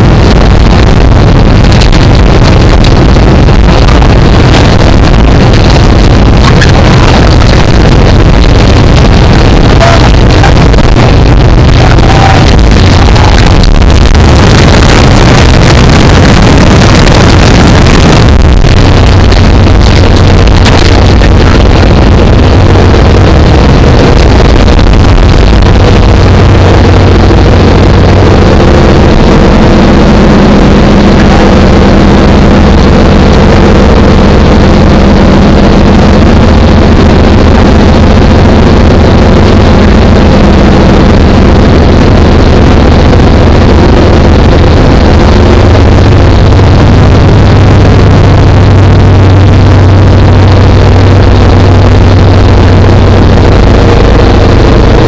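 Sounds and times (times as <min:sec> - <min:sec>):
aircraft engine droning: 0:00.0 - 0:30.9.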